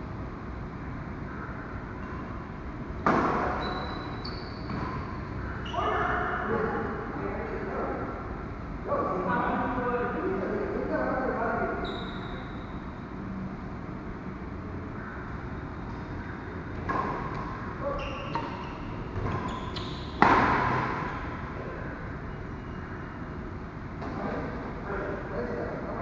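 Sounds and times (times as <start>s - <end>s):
shoes squeaking on court: 3.3s - 6.2s, 11.8s - 12.6s, 16.8s - 21.4s
rackets hitting shuttlecock: 16.8s - 17.6s, 18.3s - 21.2s.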